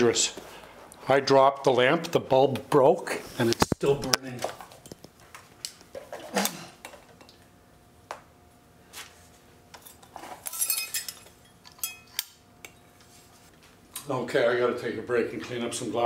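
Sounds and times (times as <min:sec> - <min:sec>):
broken glass tinkling: 0:10.5 - 0:12.1.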